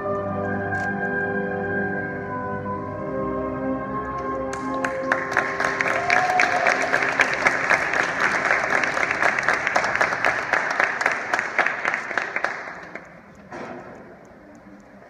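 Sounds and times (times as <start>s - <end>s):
audience applauding: 4.5s - 13.4s.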